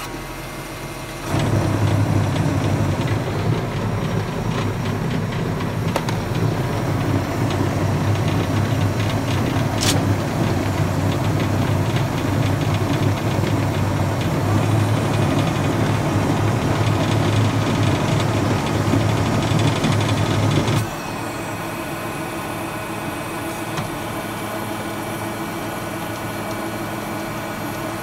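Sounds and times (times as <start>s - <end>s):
tractor humming: 0.0s - 28.0s
sharp click: 9.8s - 10.0s.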